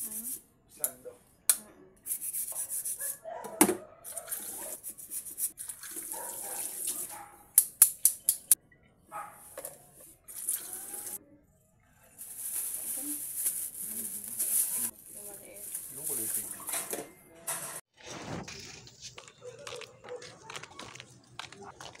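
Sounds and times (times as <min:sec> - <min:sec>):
plastic bag crinkling: 0:12.2 - 0:16.6.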